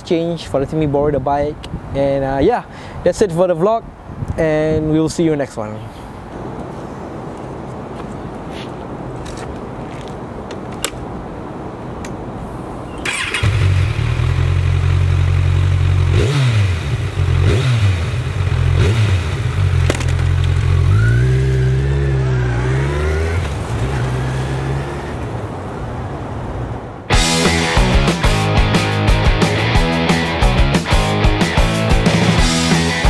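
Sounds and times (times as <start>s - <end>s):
motorcycle engine starting: 13.0s - 25.2s
motorcycle accelerating away: 13.0s - 25.3s
motorcycle engine revving: 13.0s - 25.3s.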